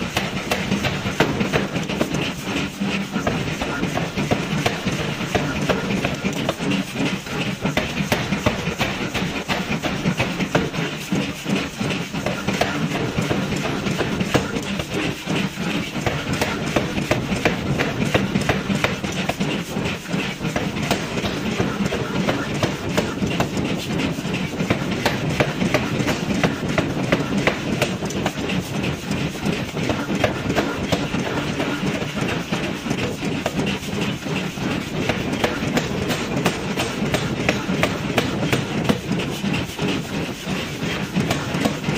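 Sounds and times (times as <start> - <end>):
power hammer striking steel: 0.0 - 28.5
steady machine drone: 0.0 - 41.9.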